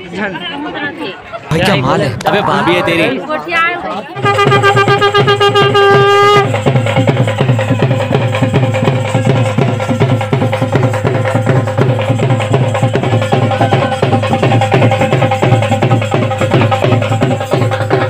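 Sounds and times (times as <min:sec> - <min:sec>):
fast traditional drumming: 0:04.2 - 0:18.0.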